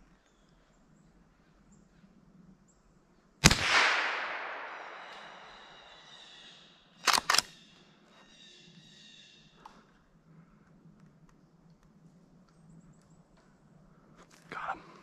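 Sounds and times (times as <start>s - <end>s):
rifle shot echoing: 3.4s - 7.5s.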